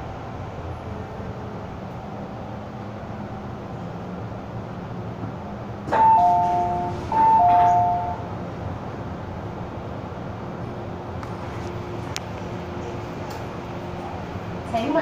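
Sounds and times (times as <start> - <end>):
train running noise: 0.0 - 15.0.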